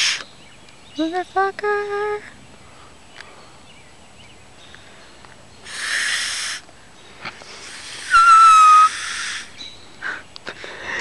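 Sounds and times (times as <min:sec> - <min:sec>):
breath rushing: 0:04.8 - 0:11.0
grass blade whistle squeal: 0:08.0 - 0:09.4.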